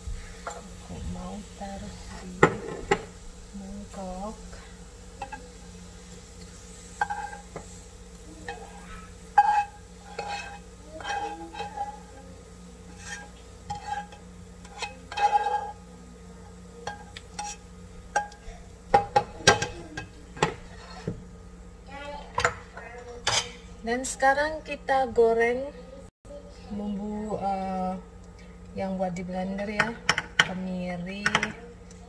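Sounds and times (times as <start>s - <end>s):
spatula scraping frying pan: 0.0s - 21.4s, 22.2s - 23.8s.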